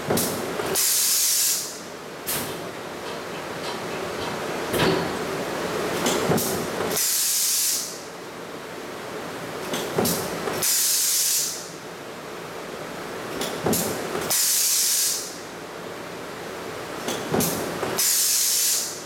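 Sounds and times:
compressed-air hiss: 0.8s - 1.8s, 7.0s - 8.0s, 10.6s - 11.7s, 14.3s - 15.4s, 18.0s - 19.0s.

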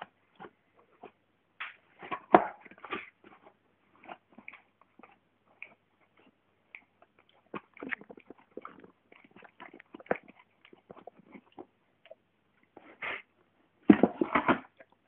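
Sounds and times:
dog licking wetly: 4.1s - 12.2s.

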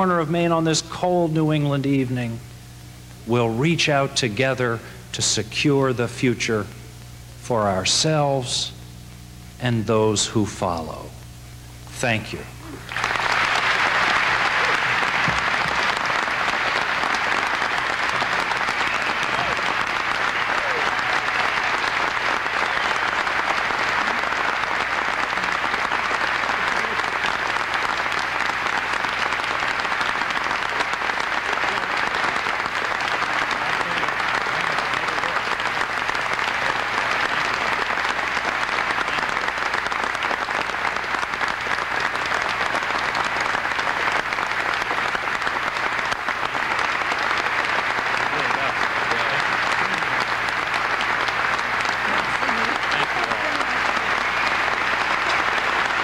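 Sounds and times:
large audience applauding: 12.6s - 56.0s.

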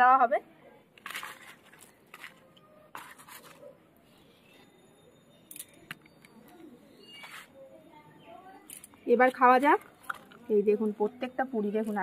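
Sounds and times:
food rustling onto a leaf: 1.0s - 3.6s.

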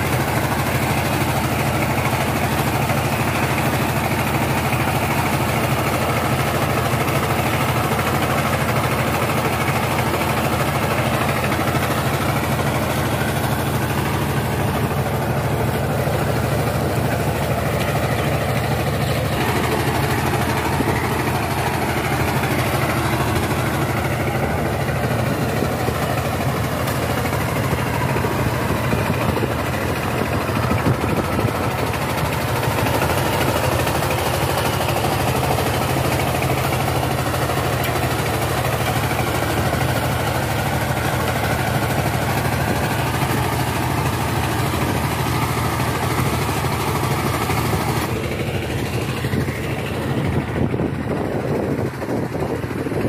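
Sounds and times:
diesel engine running under load: 0.0s - 53.0s.

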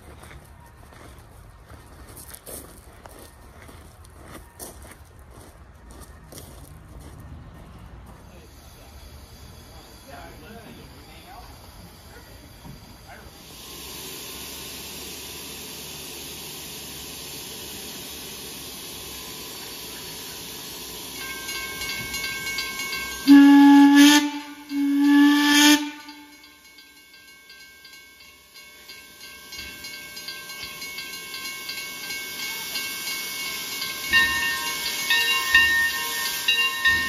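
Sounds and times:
crossing bell ringing: 18.9s - 37.0s
steam locomotive whistle blasts: 21.2s - 26.6s.

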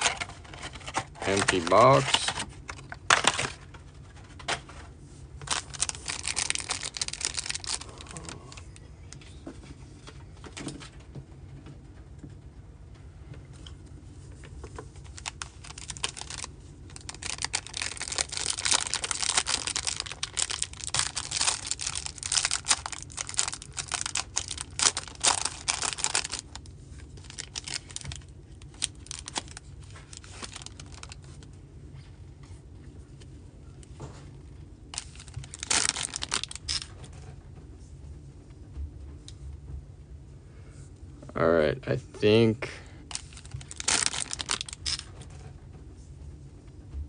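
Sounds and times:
plastic wrapper crinkling: 0.0s - 4.4s, 5.4s - 8.7s, 14.5s - 31.5s, 34.9s - 37.1s, 43.1s - 45.3s.

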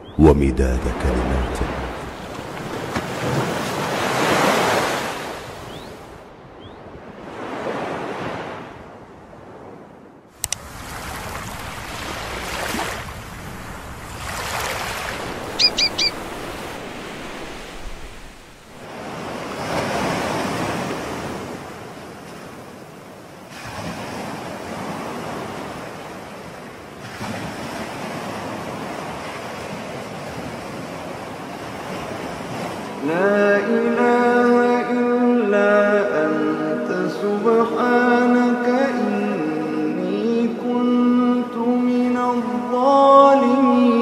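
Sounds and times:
person chanting: 0.0s - 2.2s, 33.0s - 44.0s
ocean waves breaking on beach: 0.1s - 44.0s
short high chirps: 15.6s - 16.2s.

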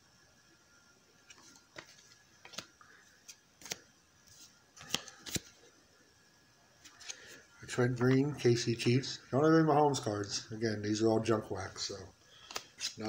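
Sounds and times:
trading cards clicking: 3.3s - 3.8s, 4.8s - 5.5s, 12.4s - 13.0s.

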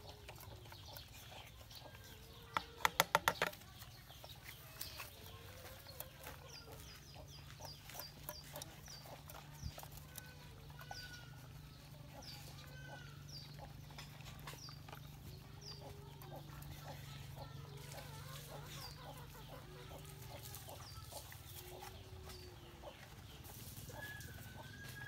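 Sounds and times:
faint chickens clucking: 0.0s - 25.0s.

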